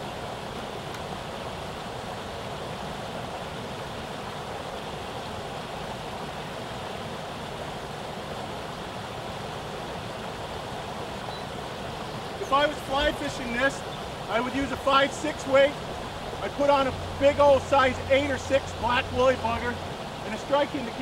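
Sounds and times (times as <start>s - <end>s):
water pouring over spillway: 12.4s - 21.0s.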